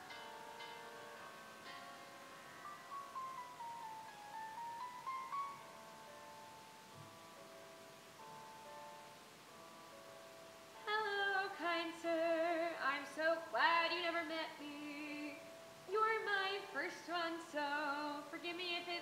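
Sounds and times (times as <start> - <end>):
instrumental accompaniment: 0.0 - 10.9
woman singing: 10.8 - 19.0.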